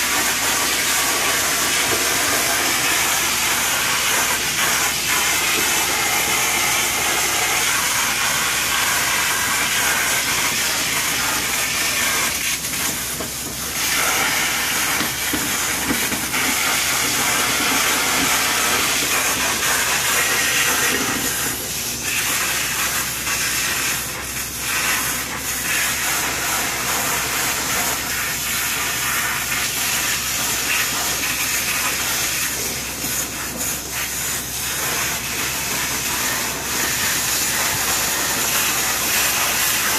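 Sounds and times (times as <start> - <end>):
vacuum suction: 0.0 - 24.0
pressurised water spray hissing: 0.0 - 39.9.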